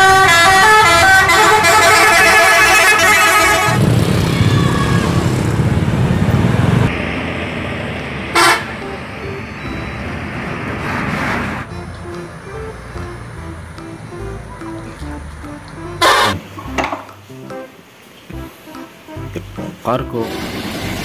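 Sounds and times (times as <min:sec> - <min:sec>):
musical bus horn melody: 0:00.0 - 0:03.8, 0:08.2 - 0:10.5, 0:11.7 - 0:21.0
low engine rumble: 0:00.0 - 0:21.0
short horn toot: 0:16.0 - 0:16.4.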